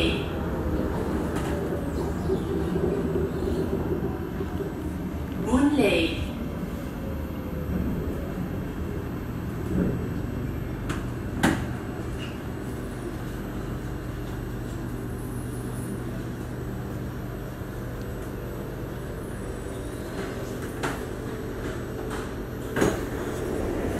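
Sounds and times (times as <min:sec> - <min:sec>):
train rumbling inside carriage: 0:00.0 - 0:23.9.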